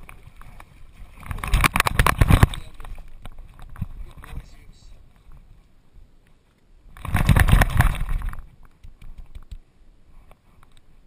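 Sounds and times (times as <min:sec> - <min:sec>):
loud rattling rustling burst: 0:06.9 - 0:08.4.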